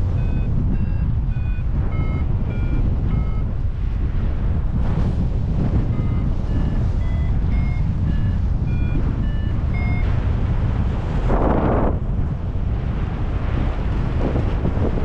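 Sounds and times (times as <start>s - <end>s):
variometer short beeps: 0.0s - 3.6s, 5.8s - 10.2s
wind rumble on microphone: 0.0s - 15.0s.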